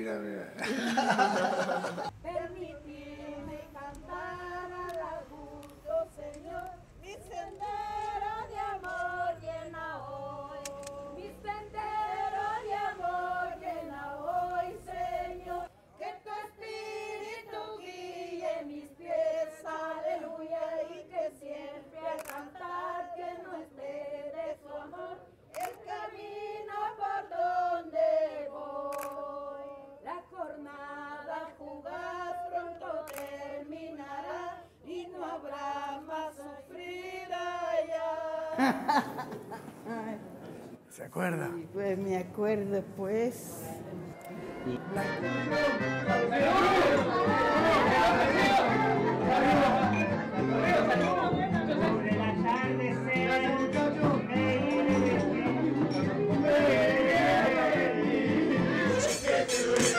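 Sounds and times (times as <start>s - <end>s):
sharp clicks: 25.5s - 25.8s, 28.9s - 29.2s.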